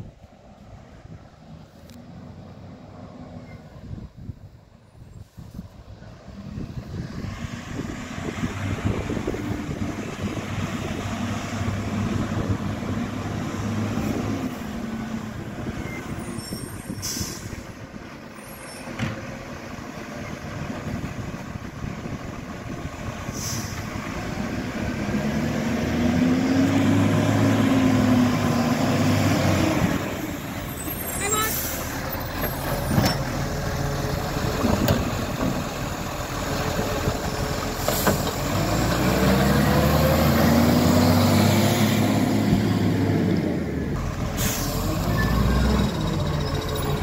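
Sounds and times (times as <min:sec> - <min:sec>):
truck diesel engine revving: 0:06.2 - 0:47.0
air brake hisses: 0:16.7 - 0:17.6, 0:23.3 - 0:23.9, 0:31.4 - 0:32.0, 0:44.3 - 0:45.0.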